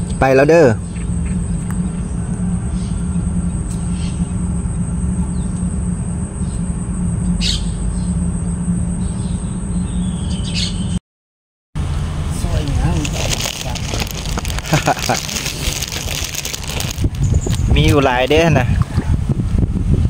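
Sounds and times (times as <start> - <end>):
constant low hum: 0.0 - 11.0, 11.8 - 20.0
high-pitched insect drone: 0.1 - 10.9.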